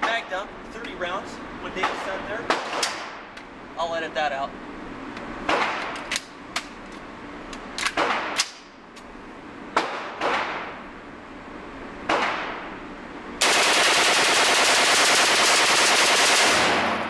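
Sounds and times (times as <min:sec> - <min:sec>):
gunshots echoing: 0:01.8 - 0:03.3, 0:05.5 - 0:06.0, 0:09.8 - 0:10.7, 0:12.1 - 0:12.6, 0:13.4 - 0:17.0
rifle firing full-auto burst: 0:13.4 - 0:17.0.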